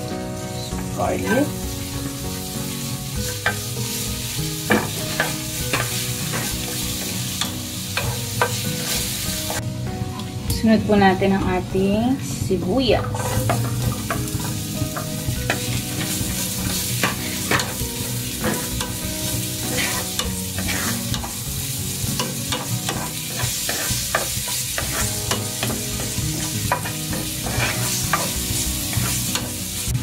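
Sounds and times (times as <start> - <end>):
onions sizzling in a frying pan: 0.0 - 30.0
spatula scraping a pan: 3.2 - 9.6, 13.0 - 21.4, 22.1 - 29.6.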